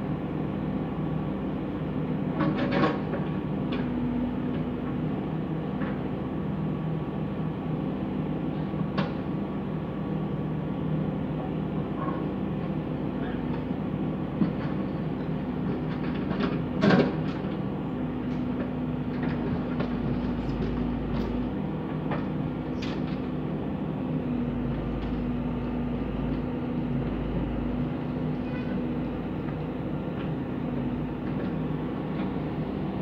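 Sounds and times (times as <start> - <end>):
diesel engine running: 12.6 - 33.0.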